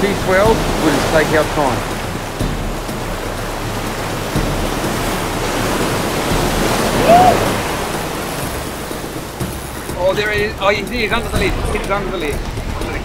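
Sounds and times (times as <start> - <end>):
waves washing over rocks: 0.0 - 13.0
rising and falling cry: 6.9 - 7.6.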